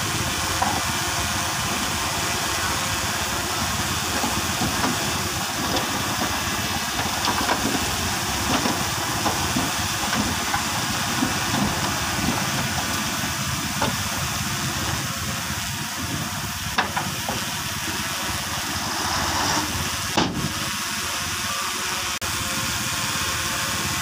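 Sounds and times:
bulldozer diesel engine: 0.0 - 24.0
steady hiss: 0.0 - 24.0.

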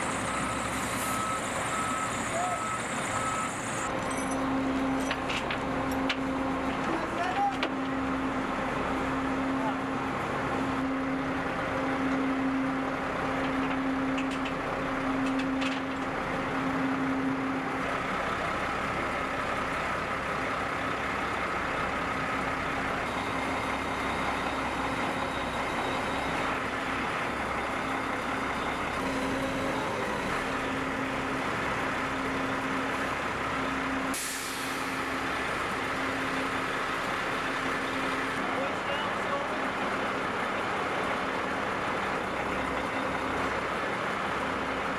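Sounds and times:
diesel engine running: 0.0 - 44.9
air hiss burst: 34.1 - 34.9.

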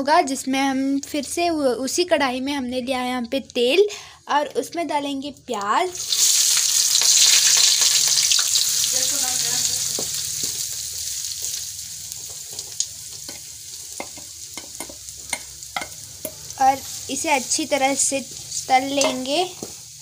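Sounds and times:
onions sizzling in hot oil: 5.9 - 20.0
spoon clicking against pan: 13.2 - 16.4, 19.0 - 19.3.

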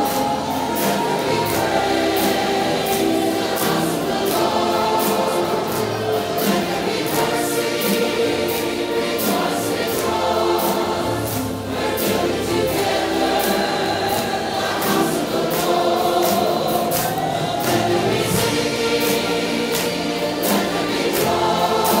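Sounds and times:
choir singing gospel music: 0.0 - 22.0
percussion beat: 0.0 - 22.0.

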